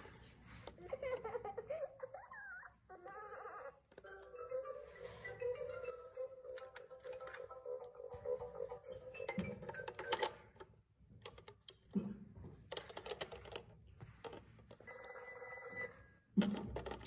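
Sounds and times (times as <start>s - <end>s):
toy telephone electronic ringing: 4.0s - 10.6s, 14.8s - 16.3s.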